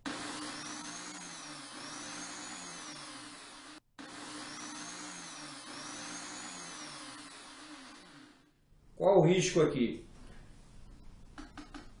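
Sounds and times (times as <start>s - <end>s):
electric drill running: 0.0s - 8.5s.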